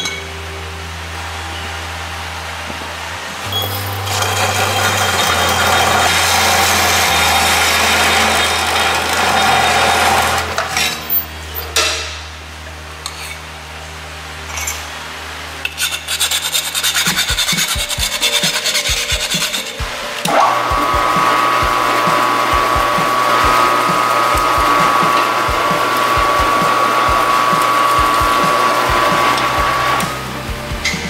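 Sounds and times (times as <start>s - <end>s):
saw motor humming: 0.5s - 11.0s, 15.6s - 31.0s
metal saw cutting tubing: 3.5s - 11.9s, 15.6s - 30.2s
file rasping on pipe: 15.7s - 19.9s.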